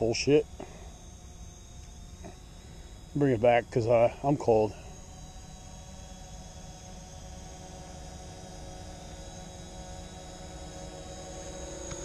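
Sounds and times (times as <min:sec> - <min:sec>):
drone propellers whining: 0:00.0 - 0:12.0.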